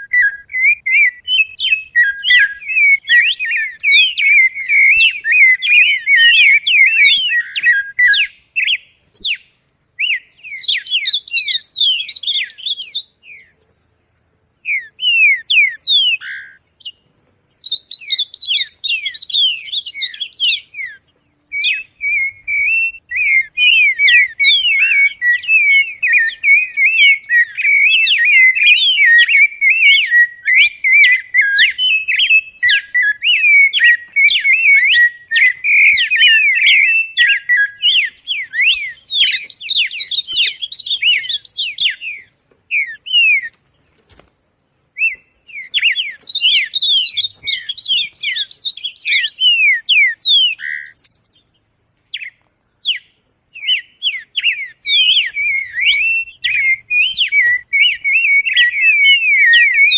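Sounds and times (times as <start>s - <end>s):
songbirds warbling chirps: 0.0s - 59.9s.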